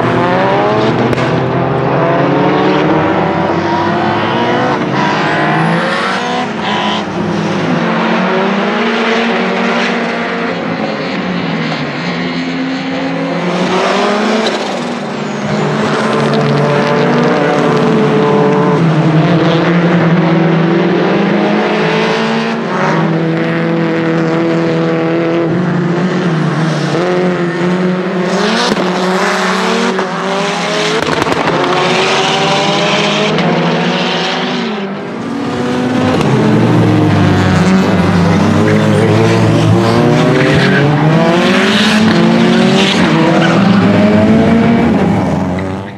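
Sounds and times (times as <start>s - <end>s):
car engine revving through gears: 0.0s - 45.9s.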